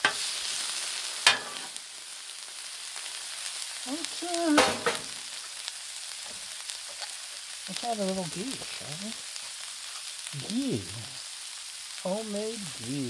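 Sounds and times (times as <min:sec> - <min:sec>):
food sizzling on griddle: 0:00.0 - 0:13.0
metal spatula tapping griddle: 0:01.2 - 0:01.7
person humming: 0:10.4 - 0:11.2.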